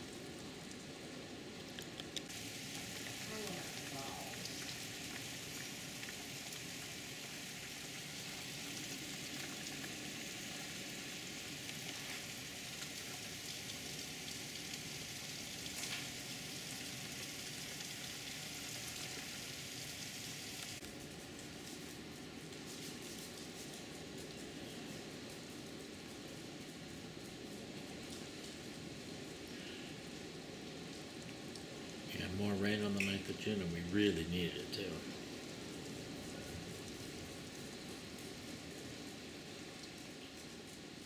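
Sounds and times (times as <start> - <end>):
heavy rain pouring: 0.0 - 41.0.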